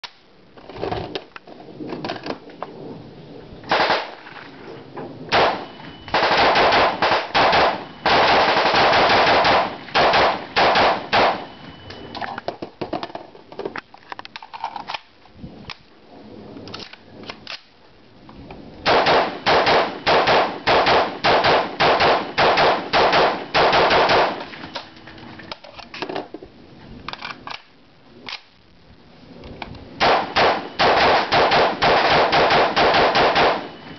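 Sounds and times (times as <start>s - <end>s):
rifle shots: 3.7s - 4.2s, 5.3s - 11.6s, 18.8s - 24.5s, 30.0s - 33.9s.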